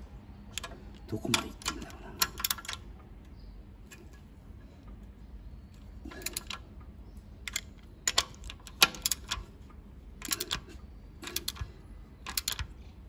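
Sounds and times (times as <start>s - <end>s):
socket ratchet clicking: 0.6s - 2.8s, 7.4s - 9.5s, 10.2s - 12.8s.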